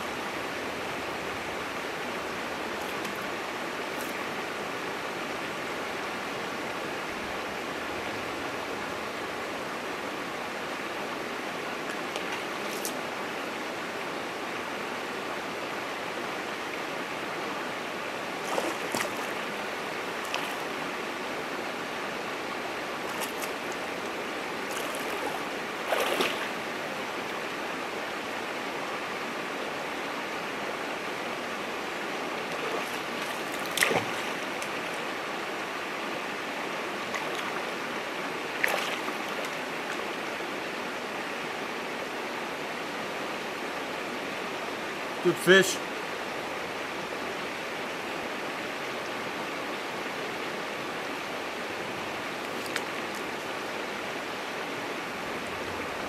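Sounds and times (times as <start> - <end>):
water rushing over stones: 0.0 - 5.6, 10.9 - 13.9, 17.1 - 28.5, 31.6 - 41.0, 51.1 - 56.0.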